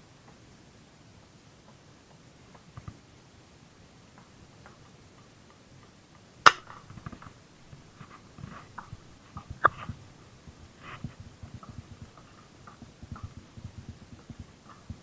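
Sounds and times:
rustling and knocking of fishing line: 4.2s - 15.0s
slingshot snap: 6.4s - 7.2s.

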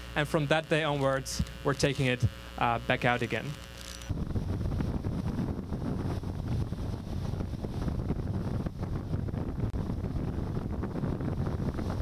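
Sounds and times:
wind buffeting microphone: 4.1s - 12.0s.

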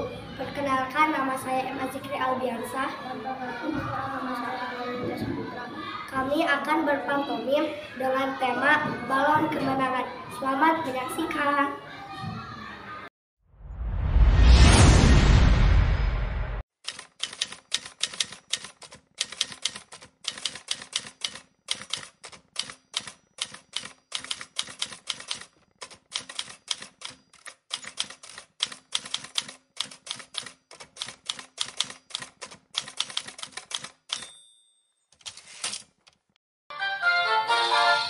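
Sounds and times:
rush of noise: 13.6s - 16.6s
typewriter key clacks: 16.8s - 34.4s
typewriter bell ring: 16.9s - 25.4s, 29.2s - 35.8s.

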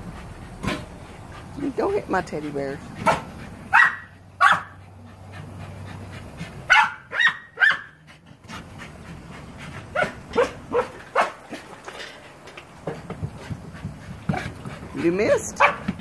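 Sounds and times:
dog barking: 3.0s - 4.8s, 6.7s - 8.0s, 9.9s - 11.4s, 15.3s - 15.9s.

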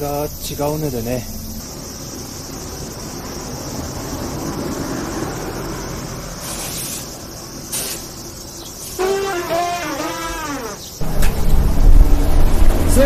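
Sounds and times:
insects droning: 0.0s - 13.0s
vehicle passing: 0.8s - 6.4s, 11.0s - 13.0s.

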